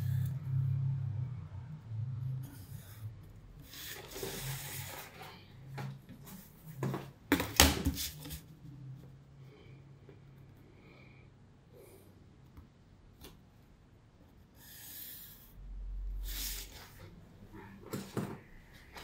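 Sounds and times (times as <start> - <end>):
low steady hum: 0.0 - 19.0
paper and cardboard sliding: 2.4 - 5.4.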